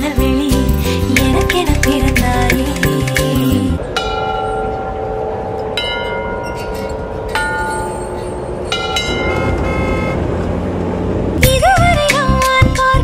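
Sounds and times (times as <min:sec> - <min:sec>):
song beat: 0:00.0 - 0:03.8
bell-like ringing notes: 0:03.8 - 0:10.4.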